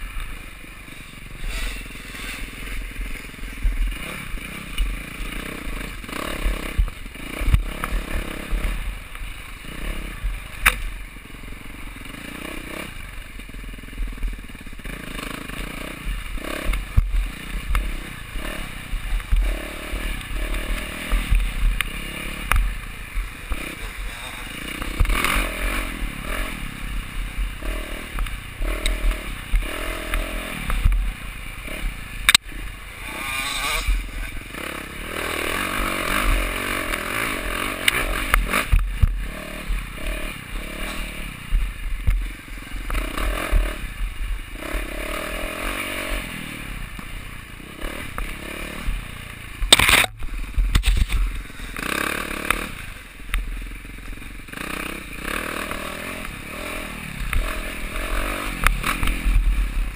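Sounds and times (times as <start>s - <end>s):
motorcycle engine running: 0.0s - 59.9s
sharp crack: 10.2s - 11.0s, 14.2s - 34.4s, 35.2s - 43.9s, 47.8s - 59.9s
bike knocking and clattering: 49.6s - 52.7s.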